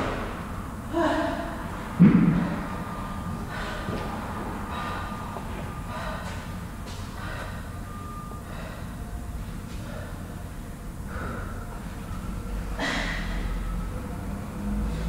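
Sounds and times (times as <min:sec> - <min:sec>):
gym room rumble: 0:00.0 - 0:15.0
person breathing hard: 0:03.4 - 0:09.1, 0:11.0 - 0:11.8.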